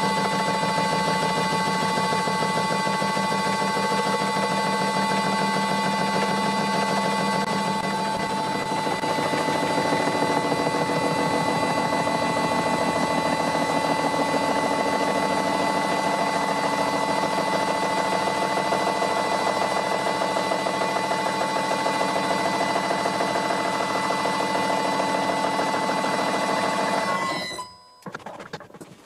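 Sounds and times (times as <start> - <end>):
lathe drive whine: 0.0 - 27.8.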